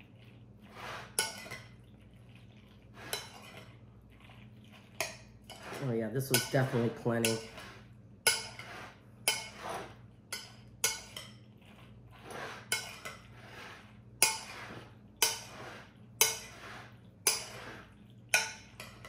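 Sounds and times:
soft mixing sound: 0.0 - 19.0
spoon clacking on ceramic bowl: 5.0 - 7.6, 8.2 - 8.6, 10.3 - 11.4, 15.2 - 15.5, 16.2 - 16.6, 17.2 - 17.6, 18.3 - 19.0.

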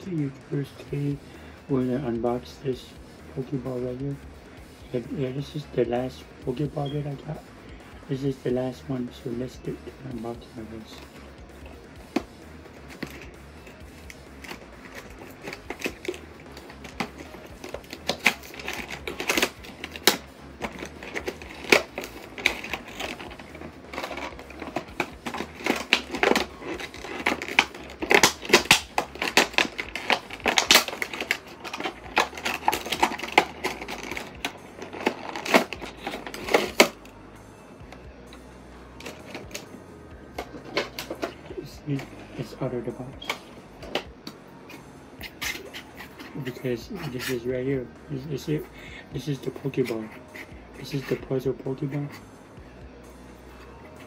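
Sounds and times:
cardboard and plastic packaging crackling: 14.4 - 37.1, 39.0 - 39.7, 40.4 - 44.1.

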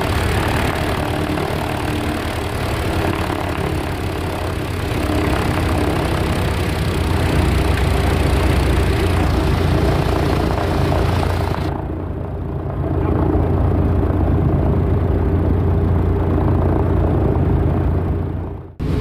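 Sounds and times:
radial engines idling: 0.0 - 11.7.

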